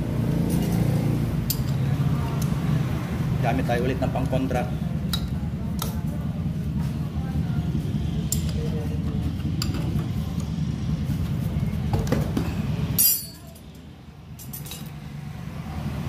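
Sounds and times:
wrench clinking: 0:01.5 - 0:01.8, 0:13.0 - 0:15.0.

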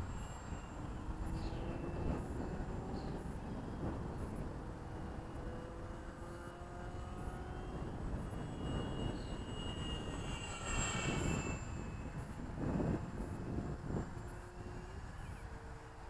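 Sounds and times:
model airplane motor whining: 0:00.0 - 0:16.0
wind noise: 0:00.0 - 0:16.0.

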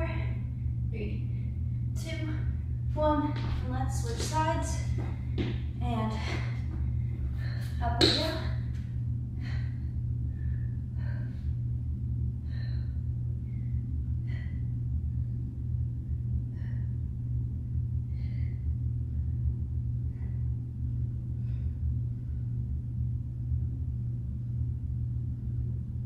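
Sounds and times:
steady low hum: 0:00.0 - 0:26.0
person exercising on a mat: 0:02.9 - 0:09.7.

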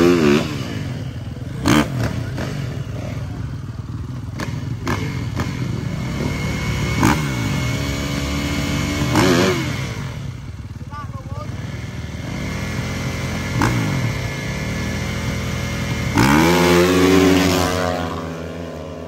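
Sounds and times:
dirt bike engines revving: 0:00.0 - 0:19.0.

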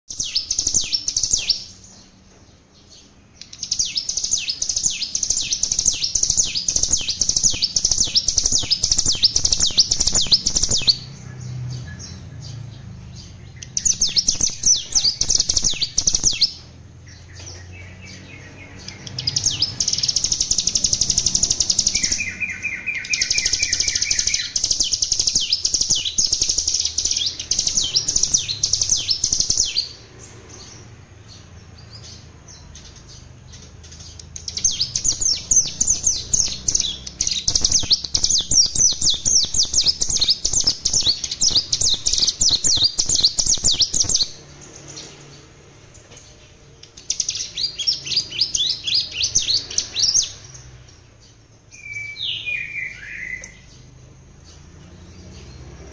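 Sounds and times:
lower bird trill: 0:00.1 - 0:44.4
bird singing rapid high notes: 0:00.1 - 0:45.4, 0:51.6 - 0:54.0.

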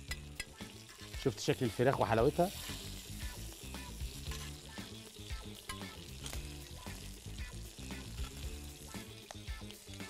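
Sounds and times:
metal tongs clicking against pan: 0:00.0 - 0:01.2, 0:04.2 - 0:04.7, 0:05.4 - 0:07.0, 0:08.0 - 0:08.4
chicken sizzling on grill pan: 0:00.0 - 0:10.0
soft background music: 0:00.0 - 0:10.0.

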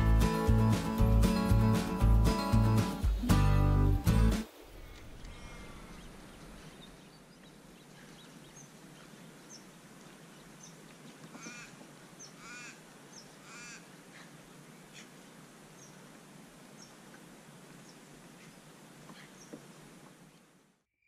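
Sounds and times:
faint steady background noise: 0:04.4 - 0:20.9
birds calling: 0:04.7 - 0:16.1, 0:17.8 - 0:19.7.

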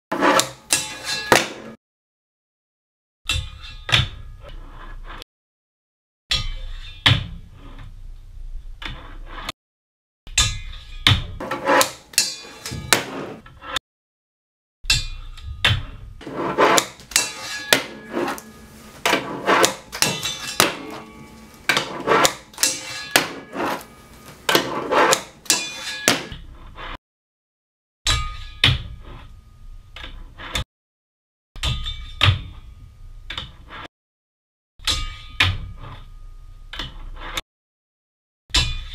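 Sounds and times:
wheels rolling and scraping: 0:00.1 - 0:01.8, 0:11.4 - 0:13.8, 0:16.2 - 0:27.0.

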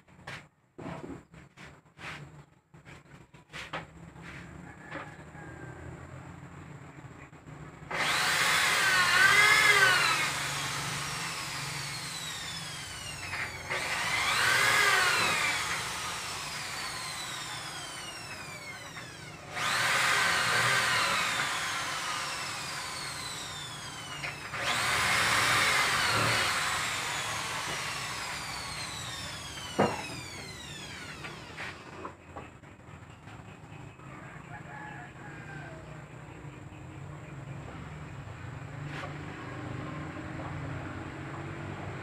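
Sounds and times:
power tool whining: 0:07.9 - 0:32.2.

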